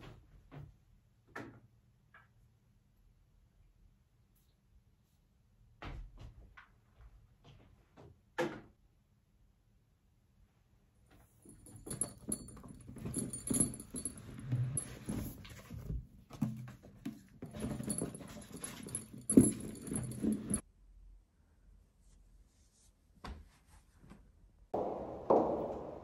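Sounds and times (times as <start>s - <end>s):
rustling and knocking of items: 11.1s - 20.6s
light metallic jingling: 11.4s - 15.9s, 17.3s - 20.6s.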